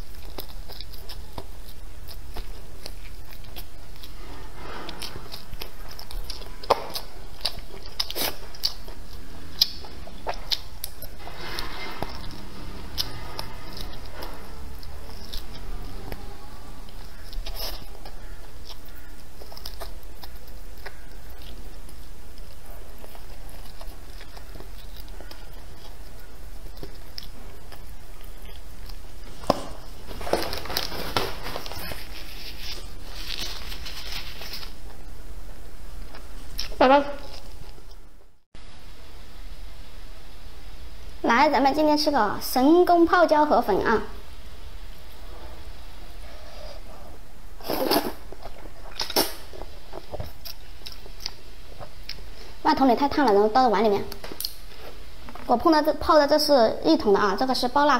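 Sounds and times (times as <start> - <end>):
chewing and sucking: 0.0 - 34.8
slurping broth: 45.3 - 50.2.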